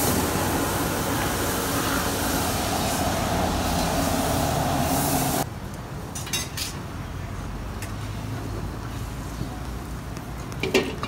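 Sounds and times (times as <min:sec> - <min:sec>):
gas burner roaring: 0:00.0 - 0:05.5.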